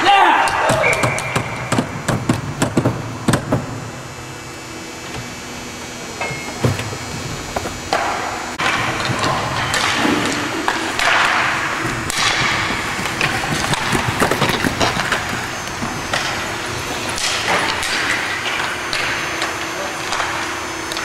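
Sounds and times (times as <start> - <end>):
hockey sticks clacking: 7.6 - 21.0.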